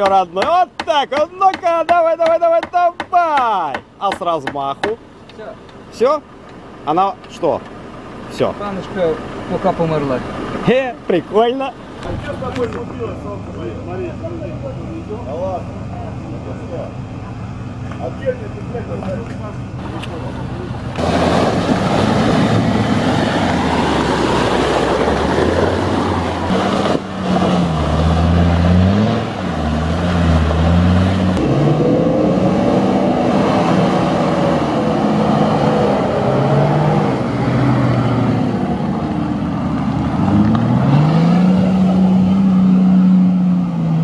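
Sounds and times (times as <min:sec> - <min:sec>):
off-road engines churning: 0:00.0 - 0:44.0
engine revving: 0:19.8 - 0:44.0.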